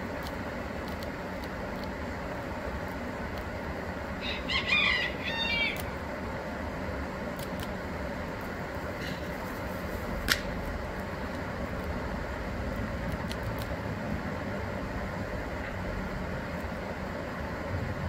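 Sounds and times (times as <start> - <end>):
low outdoor background rumble: 0.0 - 18.0
sharp click: 10.2 - 10.5.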